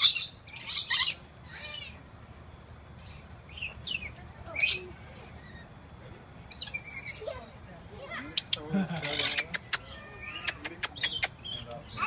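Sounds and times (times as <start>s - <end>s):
high-pitched parrot calls: 0.0s - 2.0s, 6.5s - 7.4s, 8.4s - 12.0s.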